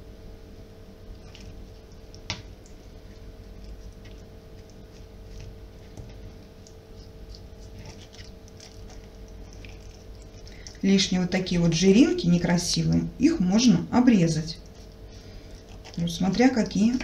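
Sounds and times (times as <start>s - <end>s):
faint steady hum: 0.0s - 17.0s
wet squelches of chicken skin: 1.1s - 11.5s, 14.5s - 17.0s.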